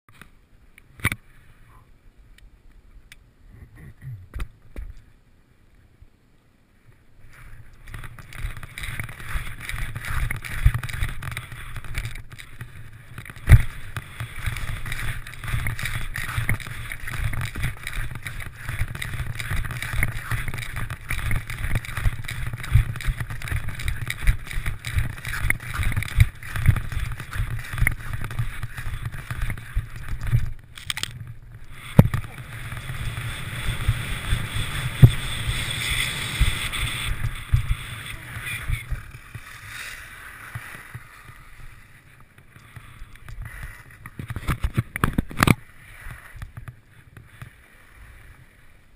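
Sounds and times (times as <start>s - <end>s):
skis scraping over snow: 7.2s - 48.9s
thumps of skis on moguls: 7.4s - 47.6s
wind rush: 31.4s - 41.8s.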